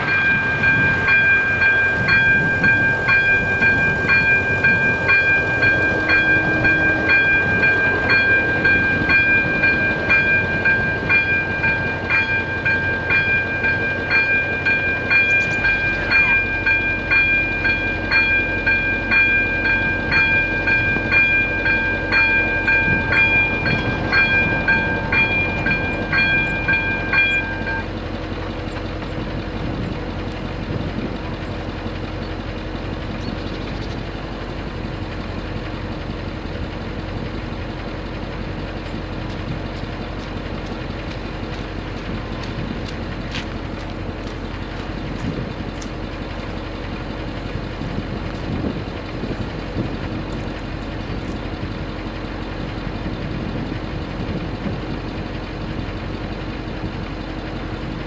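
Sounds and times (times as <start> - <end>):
level-crossing bell ringing: 0.0 - 28.1
steady high tone: 0.0 - 28.1
car engine idling: 0.0 - 58.0.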